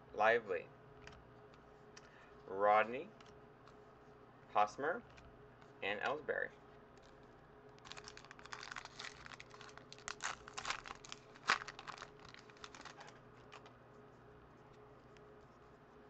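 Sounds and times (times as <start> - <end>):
foil wrapper crinkling and tearing: 7.8 - 13.8.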